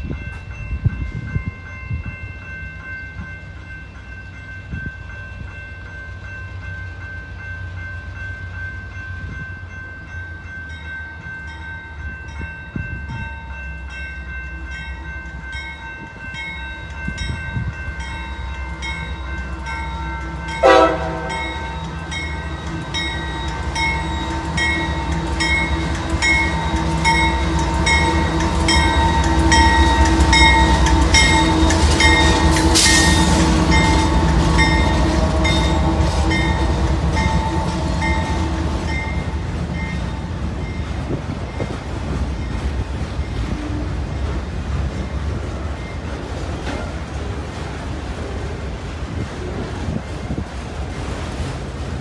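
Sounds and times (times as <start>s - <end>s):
diesel locomotive engine rumble: 0.0s - 52.0s
bell ringing: 0.1s - 41.8s
train horn: 20.4s - 22.7s, 23.9s - 39.5s, 43.4s - 44.1s.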